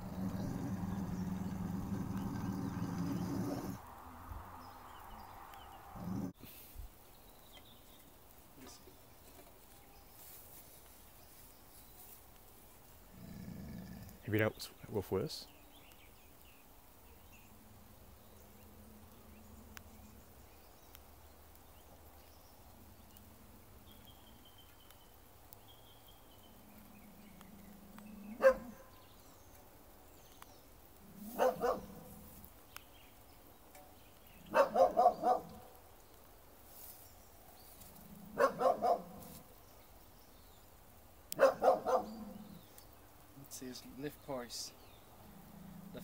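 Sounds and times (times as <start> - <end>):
dog growling: 0.0 - 3.8, 5.8 - 6.4, 13.1 - 14.4, 31.0 - 32.3, 37.9 - 39.3, 41.4 - 42.7, 45.2 - 46.0
dog barking: 28.4 - 28.9, 31.3 - 32.1, 34.5 - 35.7, 38.4 - 39.3, 41.4 - 42.4.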